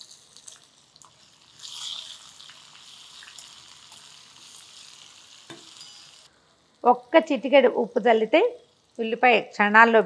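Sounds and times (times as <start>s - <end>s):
onions sizzling in oil: 0.0s - 10.0s.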